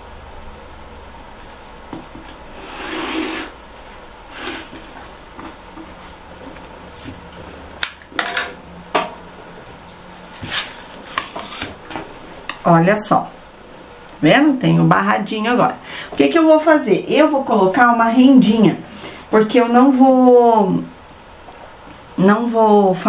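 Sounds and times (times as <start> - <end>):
rotary cutter scraping through fabric: 2.6 - 3.5.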